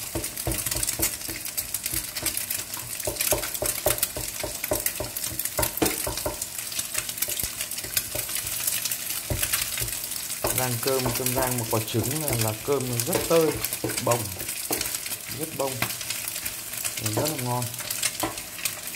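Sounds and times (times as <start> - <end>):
eggs sizzling in oil: 0.0 - 18.9
wooden spatula scraping pan: 7.2 - 18.9.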